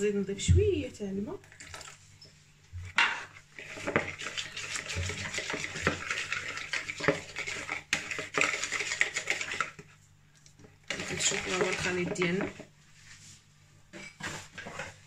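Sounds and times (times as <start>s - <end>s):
whisk clattering against bowl: 3.6s - 9.8s, 10.9s - 12.7s.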